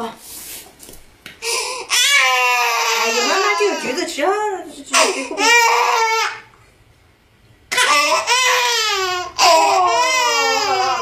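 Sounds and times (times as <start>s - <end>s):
baby crying: 1.7s - 4.3s, 4.9s - 6.5s, 7.7s - 11.0s.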